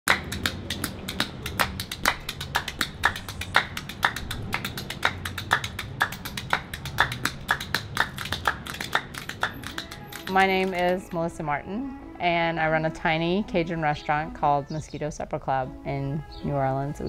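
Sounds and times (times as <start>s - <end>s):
sharp percussive taps: 0.1s - 11.0s.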